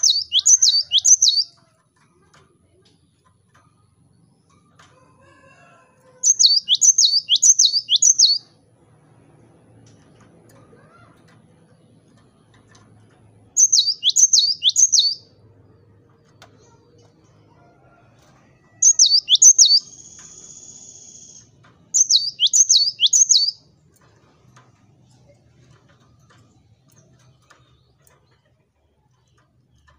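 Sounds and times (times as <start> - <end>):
bird whistled notes: 22.0 - 23.6.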